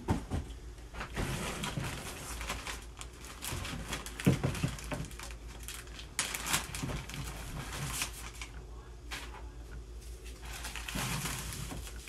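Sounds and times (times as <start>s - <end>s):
plastic bag and foam crinkling: 1.0s - 9.4s, 10.0s - 12.0s.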